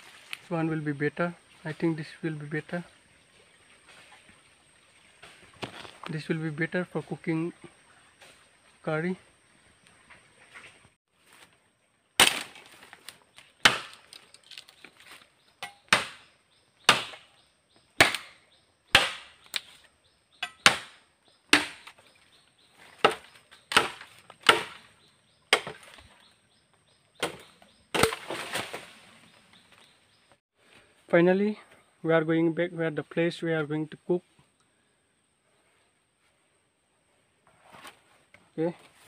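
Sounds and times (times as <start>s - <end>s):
rustle: 0.0s - 32.0s, 33.2s - 39.0s
blade chopping bamboo: 12.2s - 12.8s, 13.6s - 14.2s, 15.6s - 17.3s, 18.0s - 19.8s, 20.4s - 22.0s, 23.0s - 24.9s, 25.5s - 26.0s, 27.2s - 28.8s.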